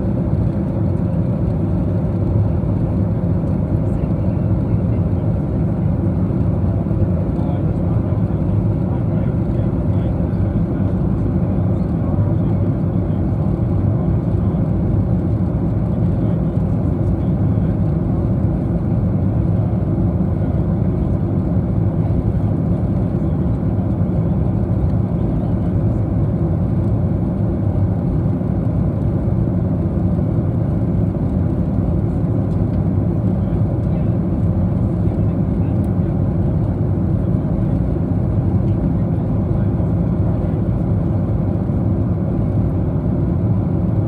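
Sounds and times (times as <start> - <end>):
airplane cabin roar: 0.0 - 44.0.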